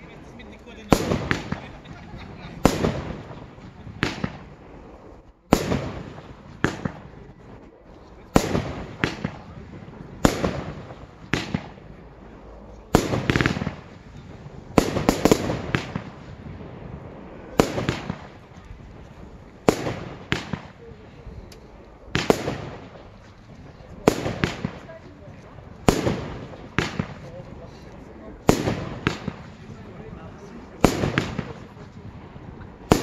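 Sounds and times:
fireworks bursting with echoes: 0:00.0 - 0:33.0.

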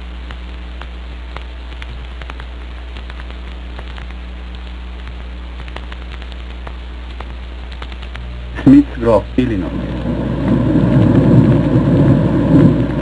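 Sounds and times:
crackles and clicks: 0:00.0 - 0:13.0
low hum: 0:00.0 - 0:13.0
hiss: 0:09.7 - 0:13.0.

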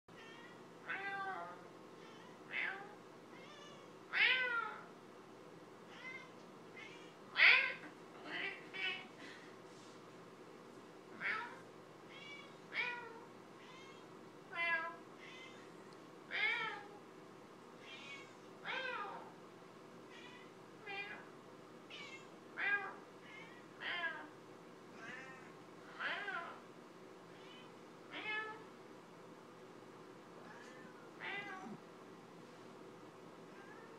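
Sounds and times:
cat meowing: 0:00.2 - 0:04.8, 0:11.2 - 0:15.6, 0:27.4 - 0:28.6, 0:30.5 - 0:31.8, 0:33.6 - 0:33.9.

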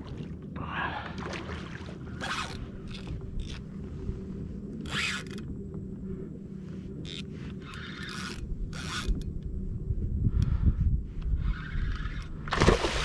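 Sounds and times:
steady low rumble: 0:00.0 - 0:13.0
fishing reel rasping: 0:07.0 - 0:09.2, 0:11.4 - 0:12.4.

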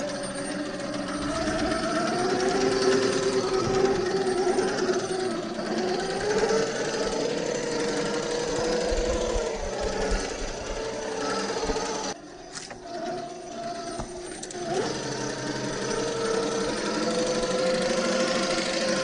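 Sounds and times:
rc truck motor whining: 0:00.0 - 0:19.0.

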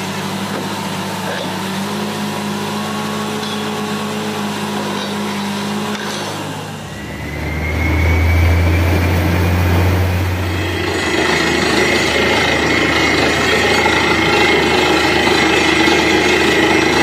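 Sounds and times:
drilling rig running: 0:00.0 - 0:17.0
faint rising whine: 0:06.6 - 0:16.9.

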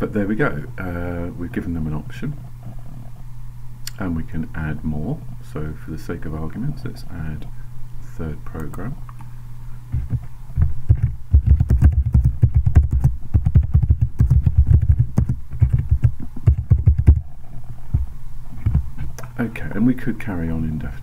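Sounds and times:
steady low hum: 0:00.0 - 0:21.0
fast typing on keyboard: 0:10.9 - 0:17.2.

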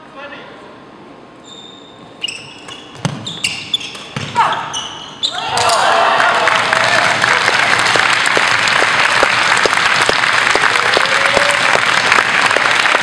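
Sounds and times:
audience applauding: 0:05.8 - 0:13.0
close person clapping: 0:06.2 - 0:13.0.

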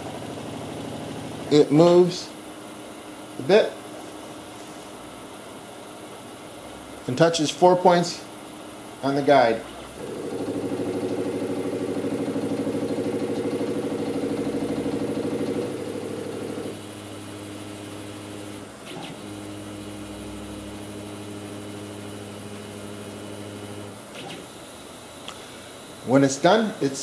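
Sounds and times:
stepper motors humming: 0:09.7 - 0:25.4.

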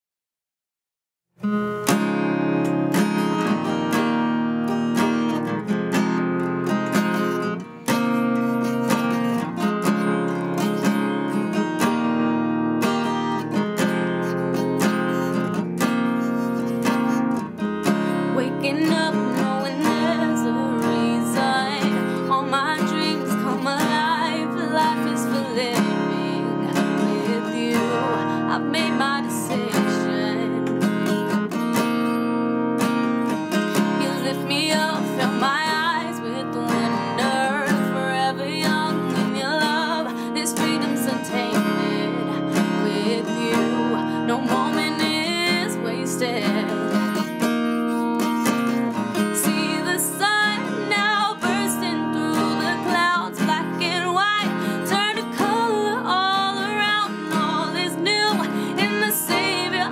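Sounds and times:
acoustic guitar strumming: 0:01.4 - 0:59.9
woman singing: 0:16.8 - 0:31.4, 0:33.5 - 0:59.9.

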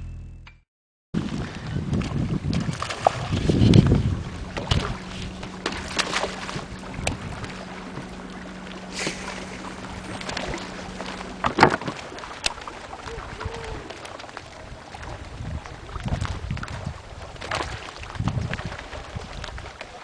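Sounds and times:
heavy low rumble: 0:01.2 - 0:17.2
water slapping boat hull: 0:01.2 - 0:20.0
wind on microphone: 0:01.2 - 0:20.0
faint steady hum: 0:03.6 - 0:16.0.

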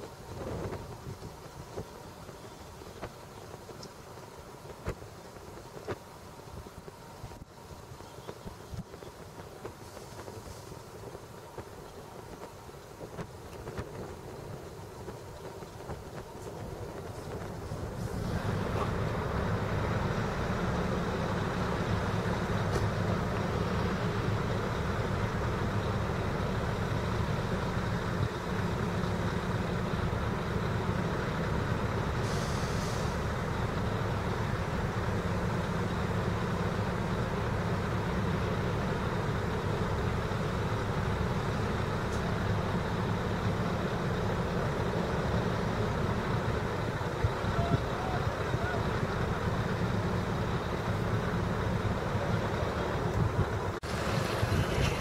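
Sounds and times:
heavy diesel engines running: 0:00.0 - 0:55.0
air release hiss: 0:32.2 - 0:33.3.

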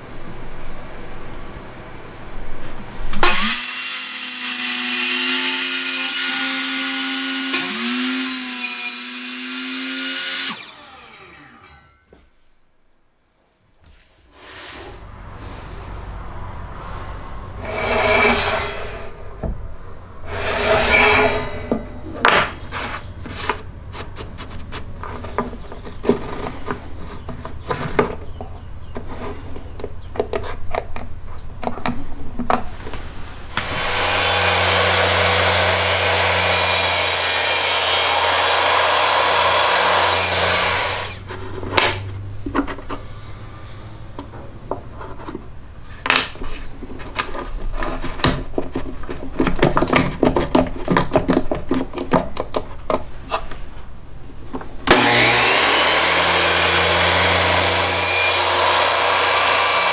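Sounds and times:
power tool running: 0:03.2 - 0:12.0, 0:33.5 - 0:41.3, 0:54.9 - 0:59.9
wood rubbing strokes: 0:16.8 - 0:19.3, 0:20.2 - 0:27.7
wood and tools knocking: 0:20.3 - 0:32.7, 0:46.1 - 0:53.5.

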